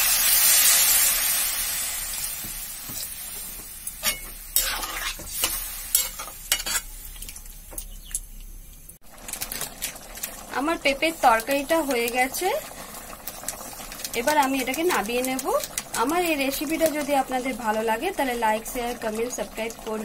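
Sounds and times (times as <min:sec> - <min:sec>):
loud sizzle in hot pan: 0:00.0 - 0:07.7, 0:09.0 - 0:20.0
metal spatula scraping and stirring: 0:02.9 - 0:07.0.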